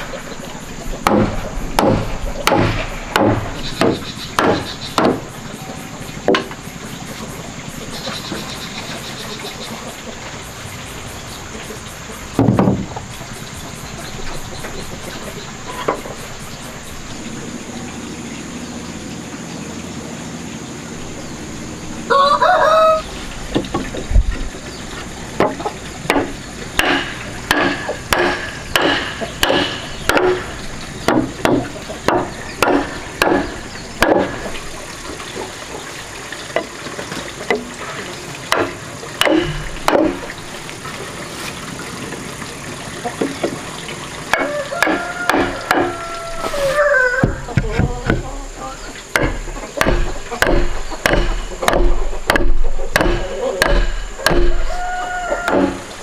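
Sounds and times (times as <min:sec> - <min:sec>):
wood knocking: 0:01.0 - 0:05.3, 0:06.2 - 0:06.6, 0:12.4 - 0:13.0, 0:25.4 - 0:34.6, 0:38.5 - 0:40.3, 0:44.3 - 0:48.4, 0:49.1 - 0:55.9
chicken calling: 0:22.1 - 0:23.2, 0:44.4 - 0:48.8, 0:54.6 - 0:55.9.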